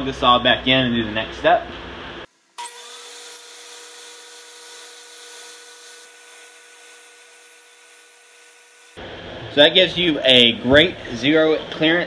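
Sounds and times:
saw blade cutting tape: 0:02.6 - 0:09.0
table saw high-pitched whine: 0:02.6 - 0:09.0.

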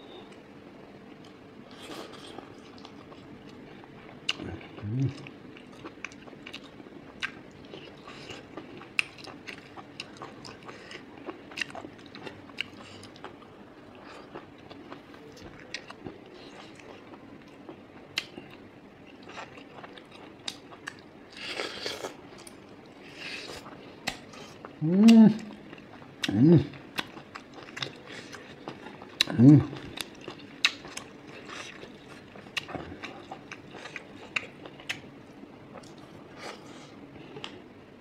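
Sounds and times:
person chewing: 0:01.1 - 0:37.7.

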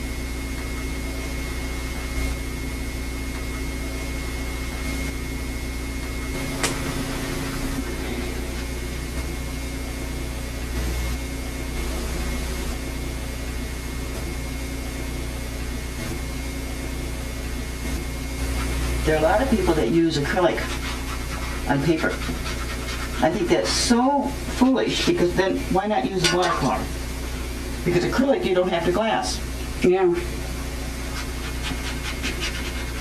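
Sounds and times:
low hum with hiss: 0:00.0 - 0:33.0.

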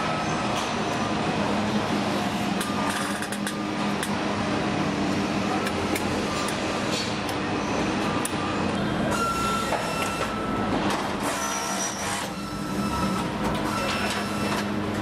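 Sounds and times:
machinery hum: 0:00.0 - 0:15.0.

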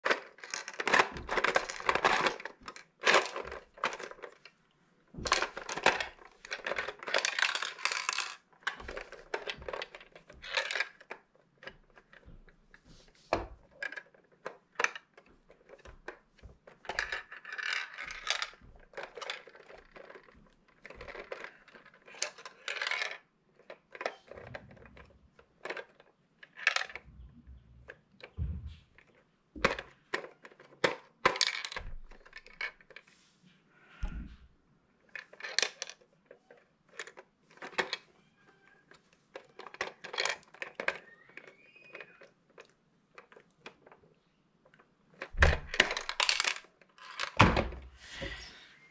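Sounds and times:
metal balls rattling in plastic: 0:00.0 - 0:04.5, 0:05.2 - 0:12.2, 0:13.6 - 0:27.1, 0:29.6 - 0:33.0, 0:35.0 - 0:44.0, 0:45.2 - 0:47.6.

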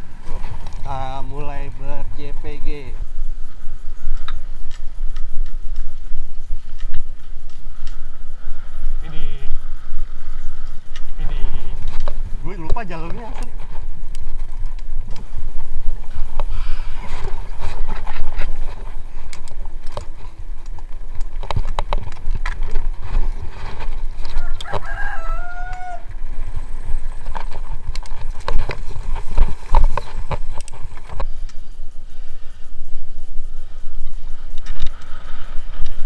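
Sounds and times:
bike rattling over brick path: 0:00.0 - 0:31.6
wind rumble on microphone: 0:00.0 - 0:36.0
rooster crowing: 0:24.2 - 0:26.3.

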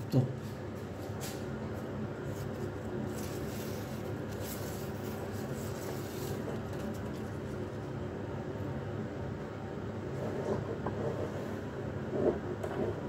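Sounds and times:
low background hum: 0:00.0 - 0:13.0
rustling and scraping of led strip: 0:00.4 - 0:08.0, 0:10.1 - 0:13.0.

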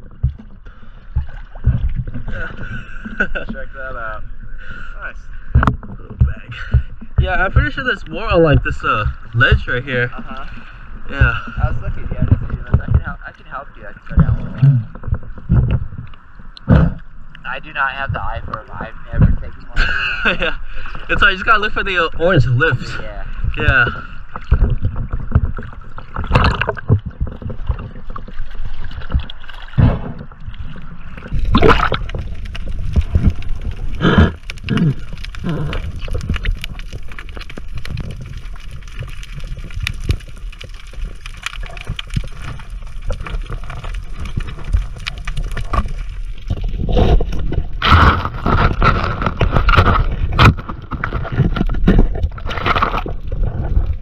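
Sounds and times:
bubbling: 0:00.0 - 0:54.0
water sloshing and gurgling: 0:00.0 - 0:54.0
muffled underwater noise: 0:02.2 - 0:15.7, 0:29.8 - 0:39.2.

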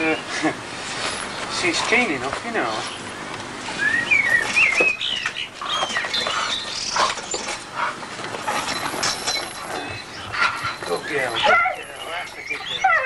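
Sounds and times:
dog whining and yipping: 0:08.6 - 0:13.0.

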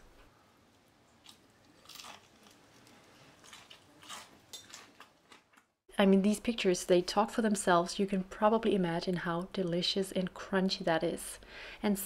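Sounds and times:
fried chicken crust crunching: 0:01.2 - 0:05.6.

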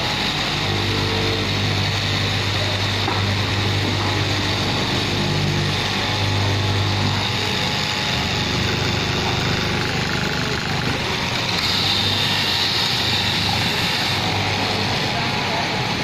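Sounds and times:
cloth cutting machine running: 0:00.0 - 0:16.0.

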